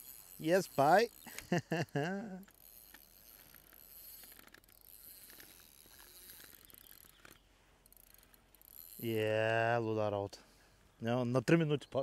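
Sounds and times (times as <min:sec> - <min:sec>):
faint ticks: 0:00.0 - 0:01.7, 0:02.3 - 0:09.2.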